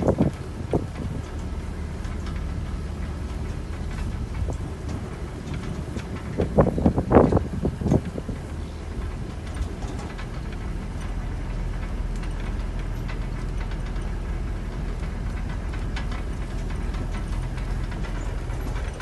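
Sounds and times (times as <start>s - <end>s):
low rumble: 0.0s - 19.0s
light ticks: 11.8s - 19.0s.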